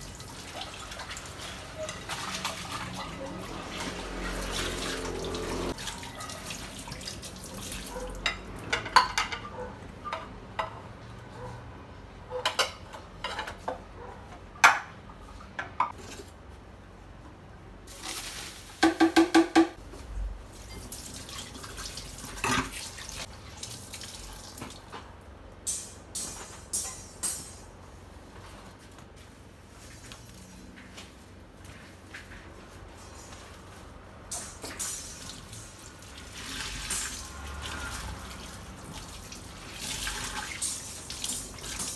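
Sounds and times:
tap water running: 0:00.0 - 0:08.4, 0:20.7 - 0:25.0, 0:34.4 - 0:41.9
dishes clinking in rack: 0:08.0 - 0:10.9
water splashing into sink: 0:34.6 - 0:41.9.

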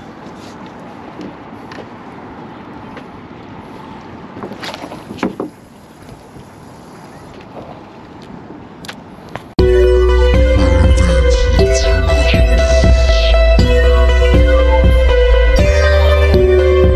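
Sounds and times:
wind: 0:00.0 - 0:16.9.

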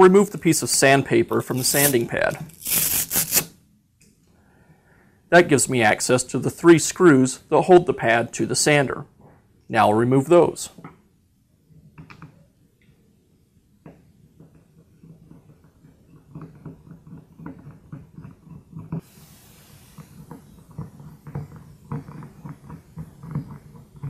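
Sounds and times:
short hiss: 0:01.4 - 0:03.5, 0:19.0 - 0:21.3
screws clicking and creaking: 0:01.5 - 0:03.4.

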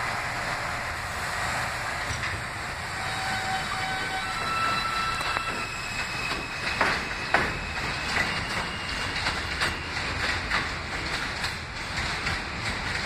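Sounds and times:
train rumbling on steel track: 0:00.0 - 0:13.0
wheels clacking over rail joints: 0:01.3 - 0:13.0.

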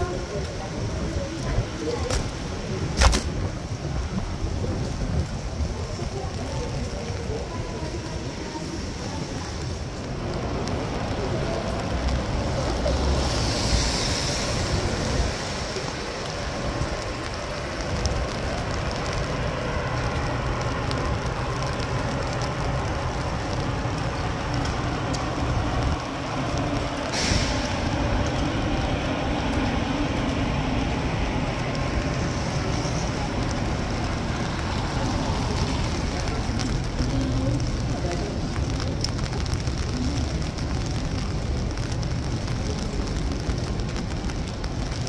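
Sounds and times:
passing vehicles: 0:00.0 - 0:45.0
air brake hiss: 0:27.1 - 0:27.7.

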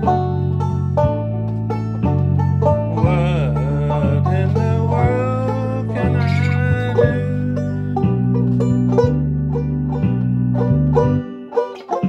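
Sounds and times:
banjo picking: 0:00.0 - 0:12.0
sustained low backing notes: 0:00.0 - 0:12.0
man singing: 0:02.9 - 0:08.0.

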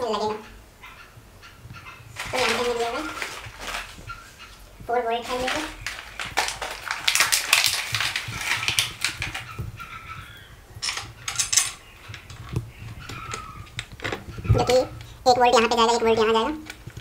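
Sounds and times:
packaging rustling: 0:02.1 - 0:04.6, 0:05.2 - 0:15.2
metal bolts clinking: 0:10.8 - 0:12.3.

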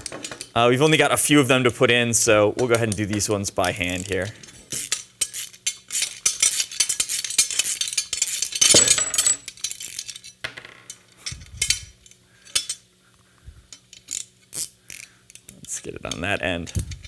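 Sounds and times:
wrenches clinking on metal: 0:00.0 - 0:00.6, 0:02.6 - 0:12.8.

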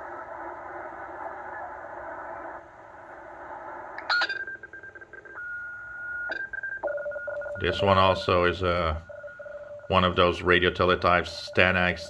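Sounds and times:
steady radio whistle: 0:00.0 - 0:02.6, 0:05.3 - 0:06.3
radio band noise: 0:00.0 - 0:06.2, 0:07.4 - 0:12.0.

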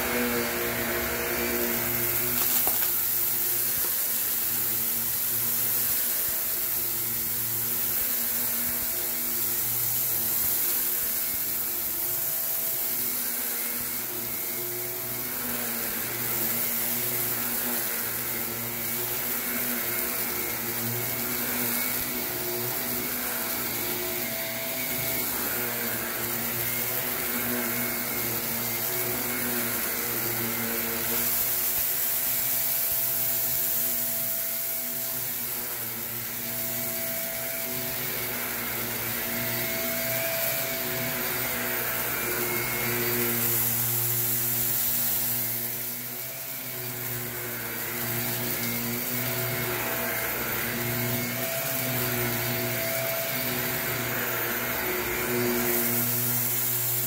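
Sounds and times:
vacuum cleaner motor whine: 0:00.0 - 0:57.0.

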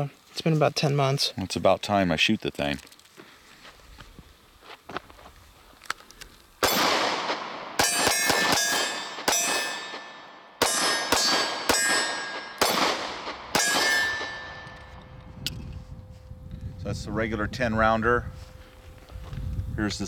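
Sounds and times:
pistol shots: 0:06.6 - 0:14.7
ringing of struck steel targets: 0:06.6 - 0:15.1.

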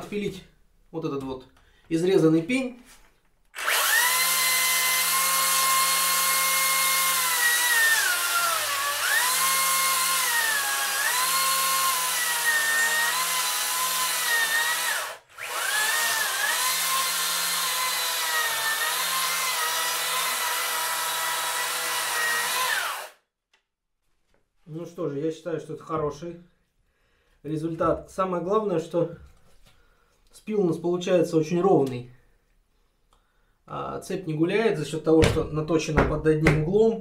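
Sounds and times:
electric chainsaw cutting wood: 0:03.6 - 0:23.2.

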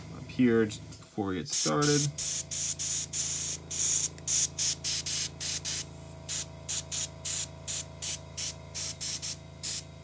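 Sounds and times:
air compressor humming: 0:00.0 - 0:10.0
airbrush spray hisses: 0:01.5 - 0:09.8.

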